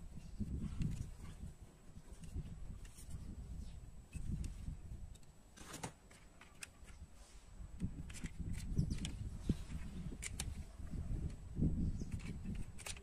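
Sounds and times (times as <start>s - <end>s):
metal toy cars clicking: 12.1s - 13.0s.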